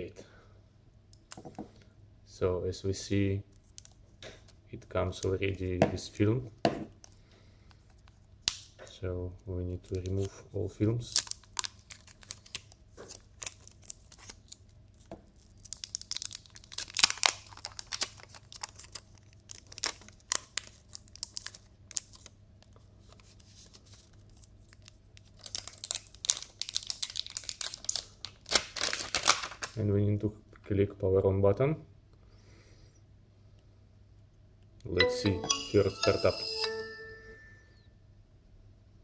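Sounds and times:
plastic film peeling crackle: 0:10.9 - 0:29.8.

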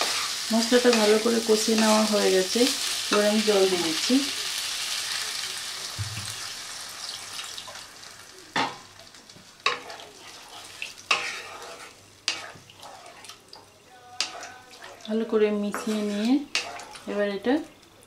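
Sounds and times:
water hissing in hot pan: 0:00.0 - 0:13.6.

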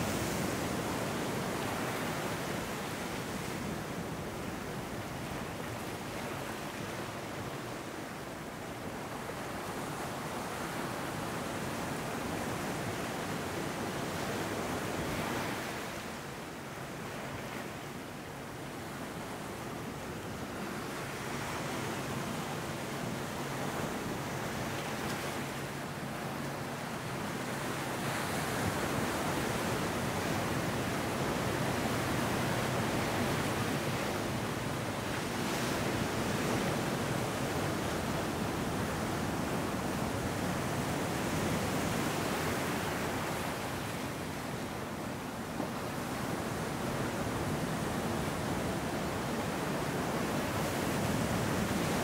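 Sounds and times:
ocean surf breaking on sand: 0:18.3 - 0:52.0.

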